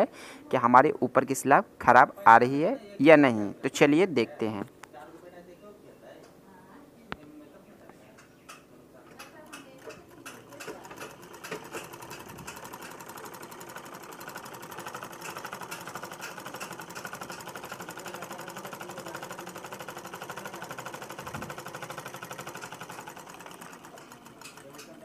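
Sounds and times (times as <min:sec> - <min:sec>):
sewing machine stitching: 0:09.1 - 0:25.0.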